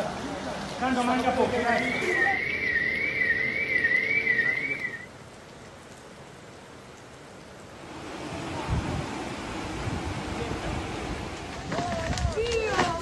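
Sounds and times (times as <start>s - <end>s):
hiss of water and rain: 0.0s - 13.0s
warbling whistle-like tone: 1.6s - 5.1s.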